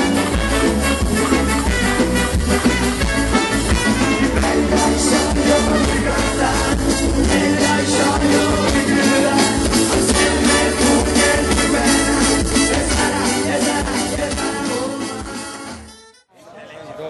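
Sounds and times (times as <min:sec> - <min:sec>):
drum beat: 0:00.0 - 0:14.5
electric guitars: 0:00.0 - 0:15.8
bass guitar: 0:00.0 - 0:16.1
person singing into microphone: 0:04.0 - 0:15.8.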